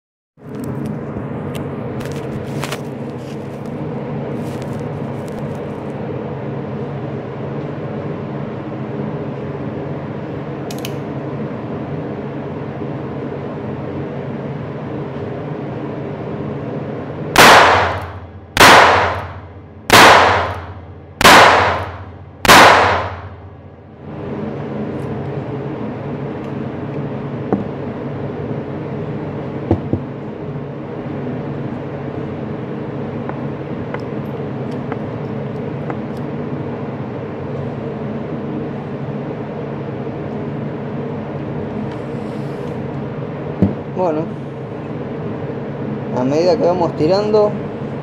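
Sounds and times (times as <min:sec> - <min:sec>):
steady background hum: 0:00.4 - 0:48.0
revolver gunshots ringing indoors: 0:17.3 - 0:23.7.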